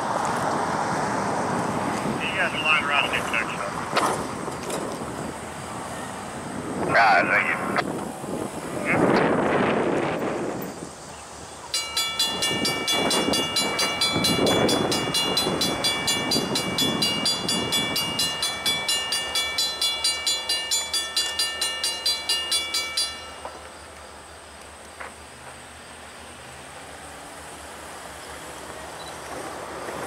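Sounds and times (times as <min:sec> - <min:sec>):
railroad warning bell ringing: 0:11.6 - 0:23.9.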